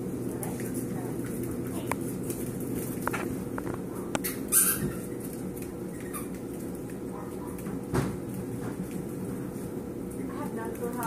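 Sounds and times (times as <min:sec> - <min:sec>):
puppy squealing: 0:04.2 - 0:05.3, 0:05.9 - 0:06.4.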